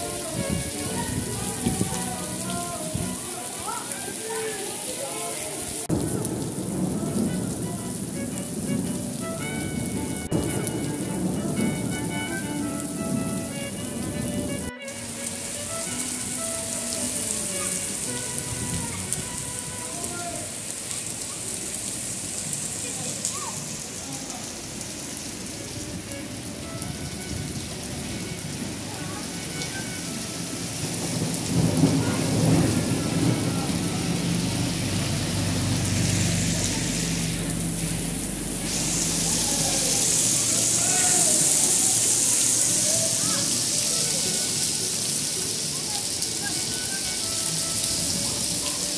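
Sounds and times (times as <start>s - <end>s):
steady rain on street: 0.0s - 48.9s
low rumble: 33.7s - 40.2s.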